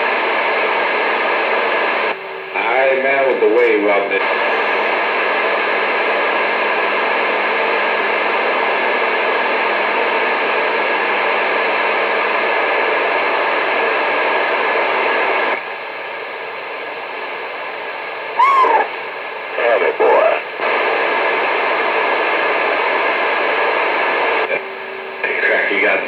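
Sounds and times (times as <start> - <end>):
radio static hiss: 0.1 - 7.8, 18.4 - 26.0
falling squeal: 18.4 - 18.9.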